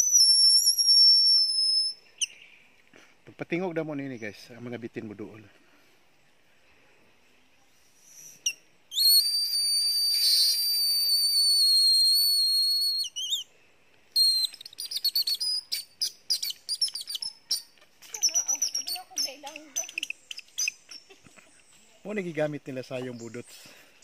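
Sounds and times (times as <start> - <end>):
plant-stem whistle: 0.0 - 2.4, 7.9 - 13.5, 14.1 - 20.8.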